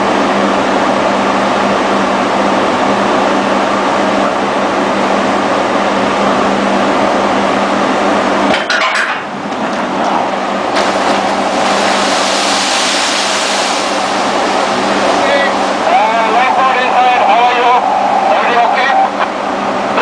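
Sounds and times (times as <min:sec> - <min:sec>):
steady machinery hum: 0:00.0 - 0:20.0
rushing splash of spray: 0:10.7 - 0:18.0.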